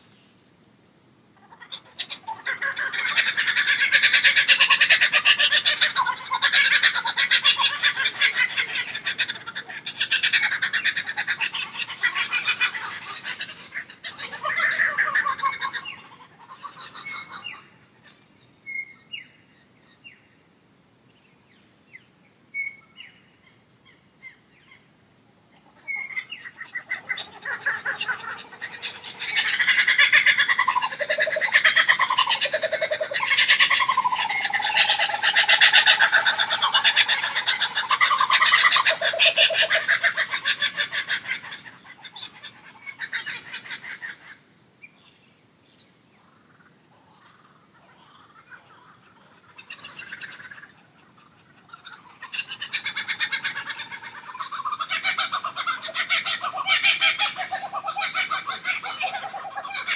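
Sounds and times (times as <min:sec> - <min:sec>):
birds chattering and chirping: 0:01.4 - 0:59.9.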